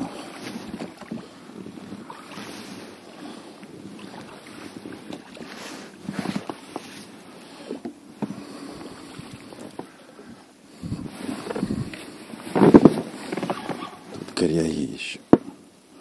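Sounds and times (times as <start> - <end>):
water splashing against boat: 0.0 - 14.5
fishing rod knocking and rubbing: 12.5 - 13.9.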